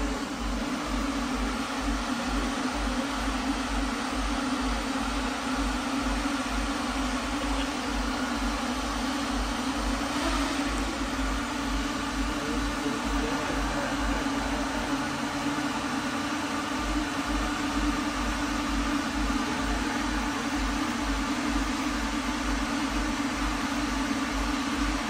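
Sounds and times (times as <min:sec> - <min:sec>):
drone propellers whirring: 0:00.0 - 0:25.0.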